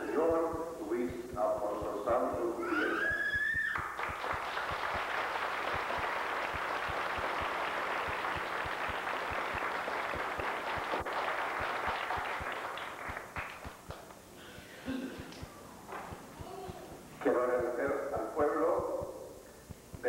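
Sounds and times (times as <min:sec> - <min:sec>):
congregation applauding: 0:02.7 - 0:14.2.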